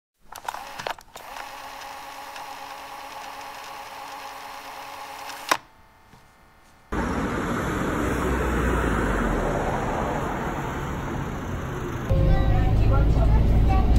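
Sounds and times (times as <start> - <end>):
mechanical clicks: 0.3 - 5.7
mechanical whirring: 0.3 - 5.7.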